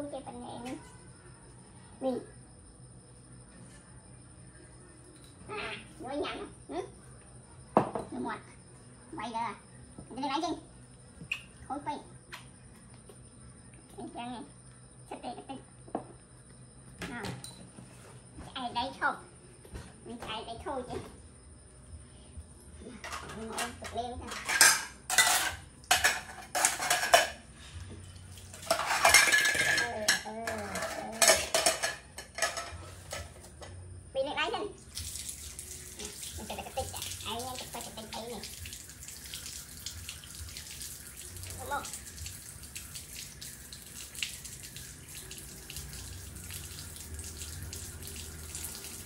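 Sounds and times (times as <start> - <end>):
metal pots and utensils clattering: 23.0 - 27.5, 28.5 - 33.5
tap water running onto steel pot: 34.9 - 49.0.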